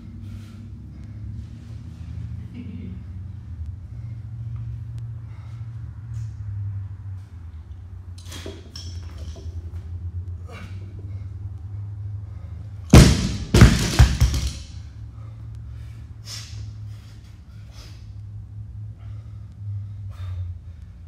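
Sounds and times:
barbell thudding on rubber floor: 0:12.9 - 0:14.7.

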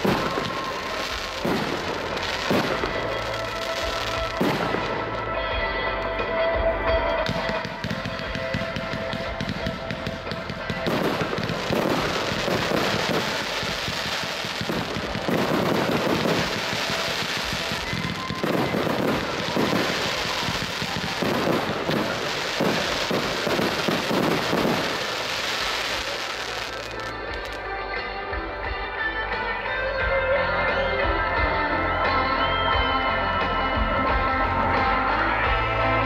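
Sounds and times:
fireworks bursting and crackling: 0:00.0 - 0:27.8
music: 0:00.0 - 0:36.0.

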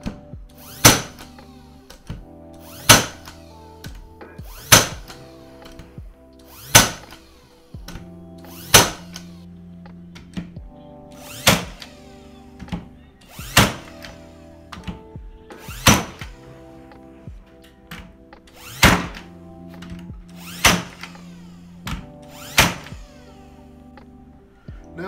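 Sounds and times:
nail gun firing into wood: 0:00.7 - 0:02.1, 0:02.8 - 0:03.4, 0:04.6 - 0:05.8, 0:06.6 - 0:07.3, 0:08.6 - 0:09.3, 0:11.3 - 0:11.9, 0:13.4 - 0:14.2, 0:15.6 - 0:16.4, 0:18.6 - 0:21.2, 0:21.9 - 0:23.1.

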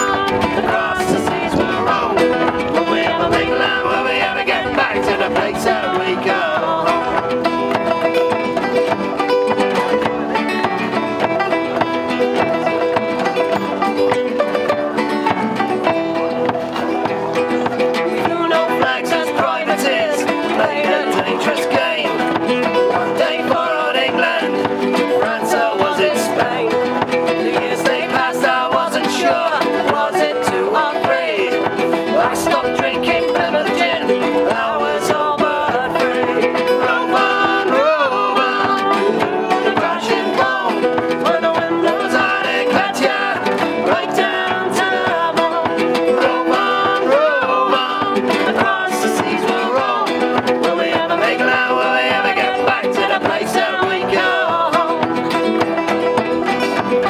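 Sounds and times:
folk music with plucked strings: 0:00.0 - 0:57.0.

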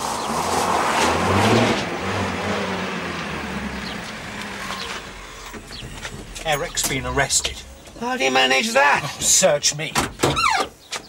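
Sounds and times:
vehicle engine running: 0:02.3 - 0:08.2.

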